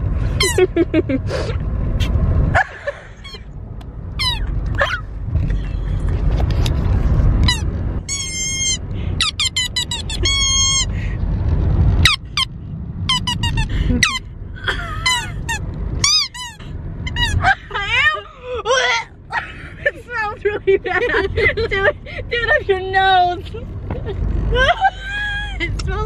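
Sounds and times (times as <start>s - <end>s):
low car road rumble: 0.0s - 26.0s
rubber squeaky toy squeaking: 3.2s - 3.4s, 4.1s - 5.6s, 7.4s - 10.9s, 12.0s - 14.3s, 15.0s - 17.5s.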